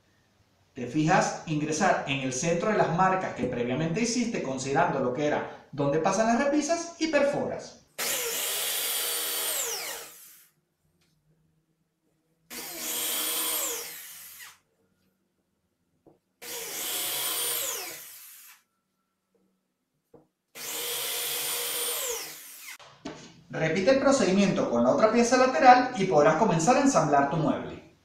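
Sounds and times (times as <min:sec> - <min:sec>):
electric drill boring holes: 0:08.0 - 0:10.5, 0:12.5 - 0:14.6, 0:16.4 - 0:18.6, 0:20.6 - 0:22.8.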